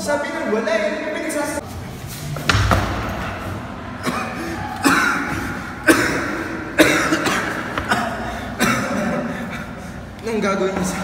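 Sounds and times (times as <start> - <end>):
man coughing hard: 4.0 - 9.9.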